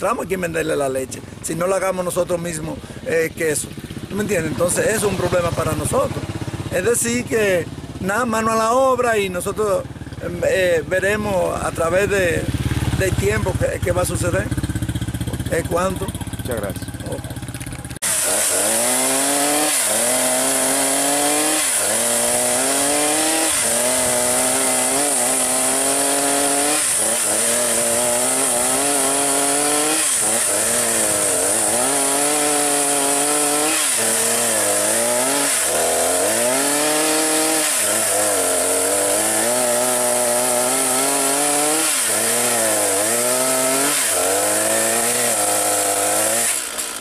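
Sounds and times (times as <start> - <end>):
chainsaw cutting wood: 12.3 - 47.0.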